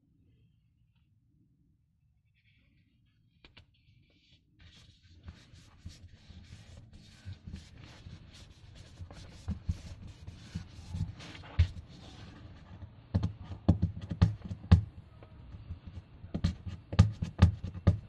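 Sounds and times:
hand rubbing sticker on board: 3.5s - 14.9s.

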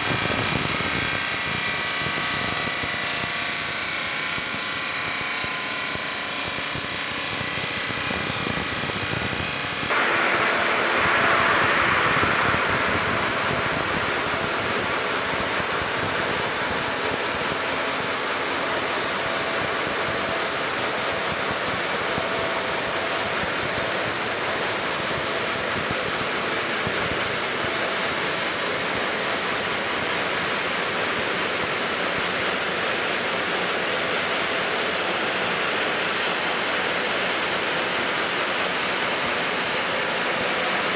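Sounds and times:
machine hum with held tones: 0.0s - 33.0s
circular saw cutting stone with water: 0.0s - 40.9s.

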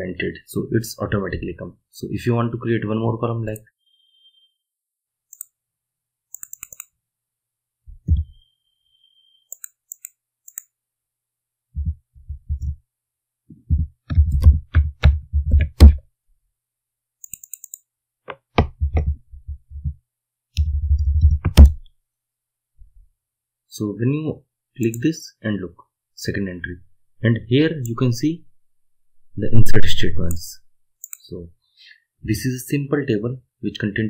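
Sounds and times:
computer keyboard typing: 6.3s - 6.9s, 17.2s - 17.8s
faint clicks: 31.0s - 31.3s.

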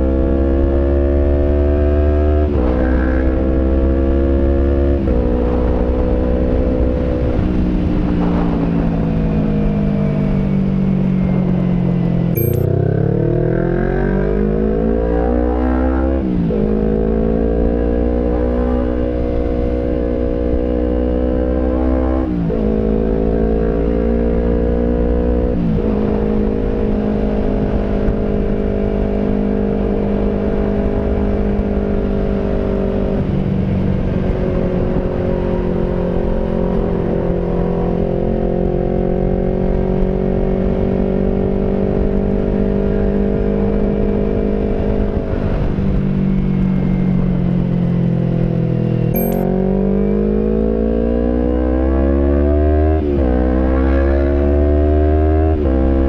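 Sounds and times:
motorcycle engine running: 12.4s - 13.3s, 49.2s - 49.5s.

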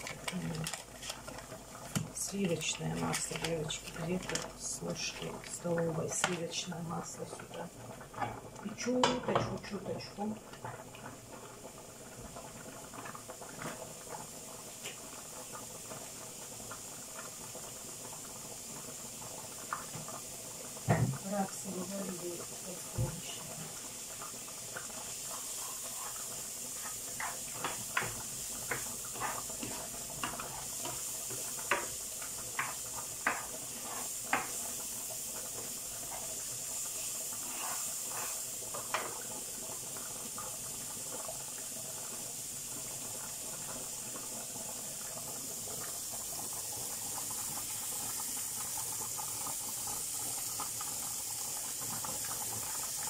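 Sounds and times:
pepper sizzling in a pan: 0.0s - 53.0s
pot of lentils boiling: 0.0s - 53.0s.

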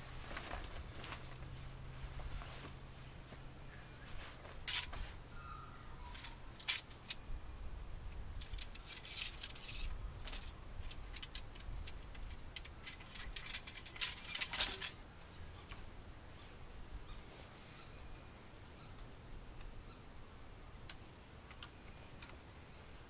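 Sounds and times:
tent fabric rustling: 0.0s - 3.4s, 4.0s - 5.2s
tent poles clicking together: 4.4s - 5.1s, 6.0s - 7.2s, 8.1s - 15.0s, 20.9s - 22.4s.

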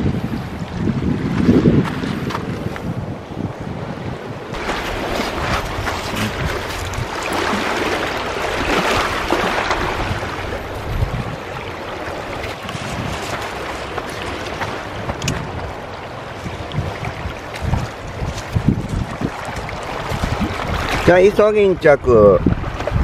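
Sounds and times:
wind rumbling on microphone: 0.0s - 23.0s
waves washing over pebbly shore: 4.5s - 21.6s.

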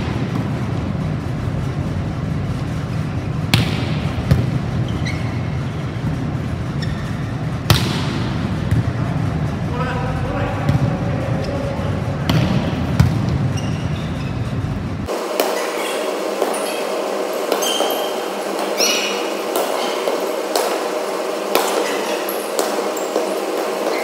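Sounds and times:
volleyball being hit: 3.5s - 4.7s, 7.6s - 9.0s, 12.3s - 13.4s, 15.3s - 16.6s, 17.4s - 24.0s
shoe squeaks on court floor: 4.8s - 6.0s, 6.7s - 7.4s, 13.5s - 14.6s, 15.4s - 20.4s, 21.6s - 24.0s.

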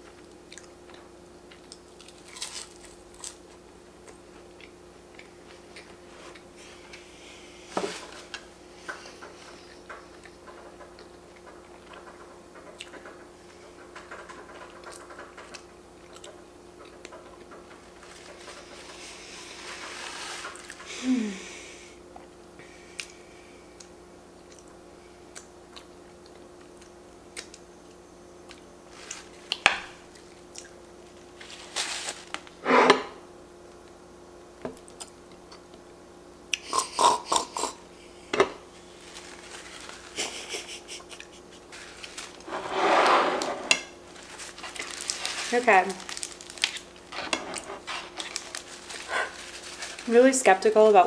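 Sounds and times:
faint steady hum: 0.0s - 51.0s
chewing: 0.2s - 3.4s, 14.8s - 17.2s, 23.8s - 27.6s
paper wrapper rustling: 31.4s - 32.5s, 38.8s - 40.7s, 41.7s - 42.5s, 44.1s - 50.7s
plates being moved: 32.6s - 33.2s, 42.4s - 44.0s
plates and cutlery clinking: 42.4s - 44.0s.

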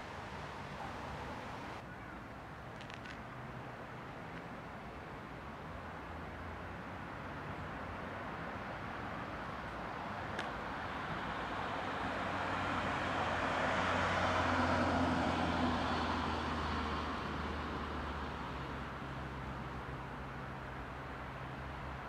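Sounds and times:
car driving past: 12.0s - 18.0s.

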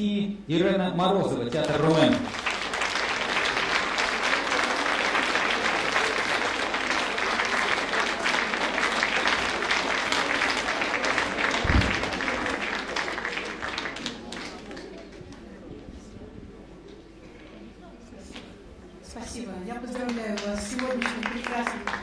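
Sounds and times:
audience applauding: 1.5s - 15.4s, 19.9s - 22.0s
low thump: 11.6s - 12.2s.

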